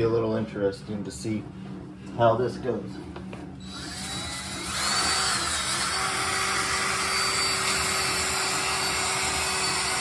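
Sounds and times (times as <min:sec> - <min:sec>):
cordless drill whining: 0:03.6 - 0:10.0.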